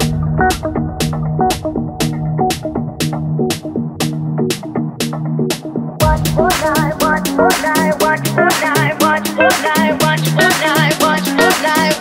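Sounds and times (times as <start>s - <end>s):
sustained synth chords: 0.0s - 5.0s
deep bass: 0.0s - 8.4s
programmed drum beat: 0.0s - 12.0s.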